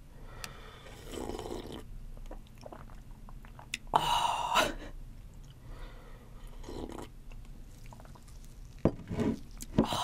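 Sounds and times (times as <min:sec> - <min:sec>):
wet chewing: 0:06.9 - 0:09.7.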